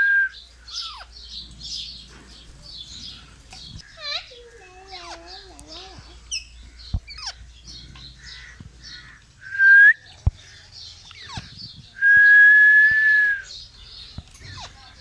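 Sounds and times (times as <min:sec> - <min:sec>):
parakeets chirping and squawking: 0:00.5 - 0:09.4, 0:10.2 - 0:12.0, 0:13.5 - 0:15.0.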